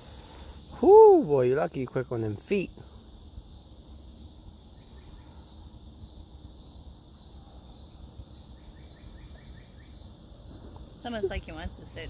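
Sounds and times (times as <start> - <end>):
crickets trilling: 0.0 - 12.0
faint chirps: 2.4 - 12.0.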